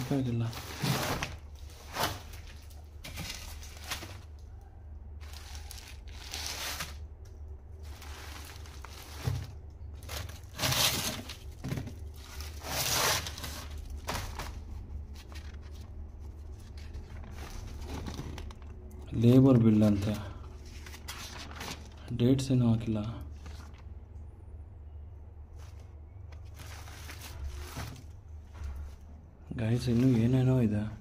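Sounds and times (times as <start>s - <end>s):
paper rustling and crinkling: 0.0s - 4.5s, 5.2s - 7.1s, 7.8s - 22.2s, 23.3s - 23.9s, 25.5s - 29.0s, 29.6s - 30.8s.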